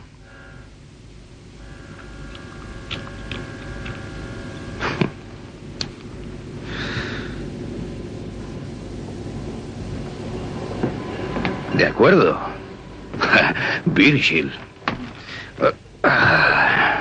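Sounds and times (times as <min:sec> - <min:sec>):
air conditioner rumbling: 0:00.0 - 0:17.0
rush of air: 0:06.5 - 0:07.9.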